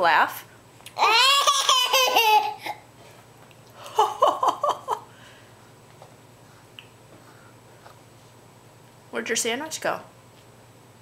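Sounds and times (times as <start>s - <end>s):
toddler laughing: 1.0s - 2.8s.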